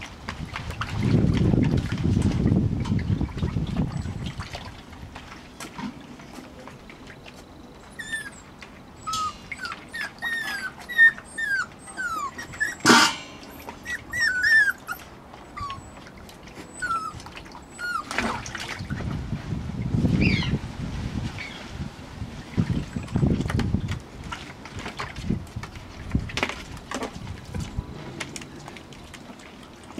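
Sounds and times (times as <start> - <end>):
puppies whining and yelping: 7.8 - 19.0.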